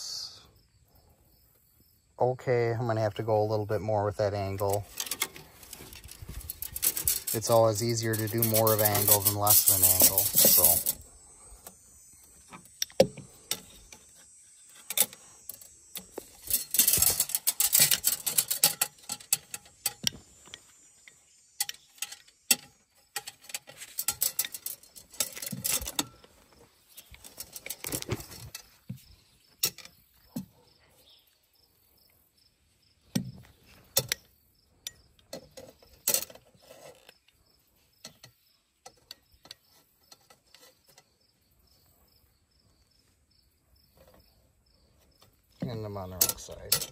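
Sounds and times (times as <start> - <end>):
insects chirping: 0.0 - 46.9
tube bender clicks and clatter: 4.6 - 11.0, 16.4 - 20.2.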